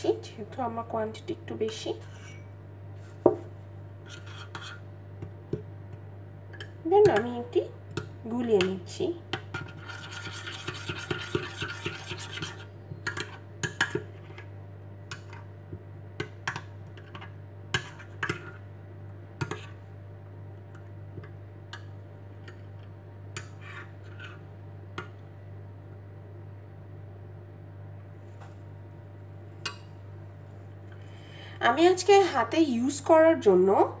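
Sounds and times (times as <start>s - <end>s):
spoon scraping a glass bowl: 2.0s - 2.5s, 4.0s - 4.9s, 9.5s - 13.4s, 23.4s - 24.4s.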